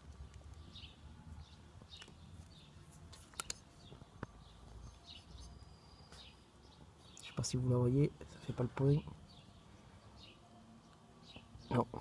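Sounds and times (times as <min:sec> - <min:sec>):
small bird chirping: 0:00.0 - 0:12.0
sharp clicks: 0:03.3 - 0:03.6.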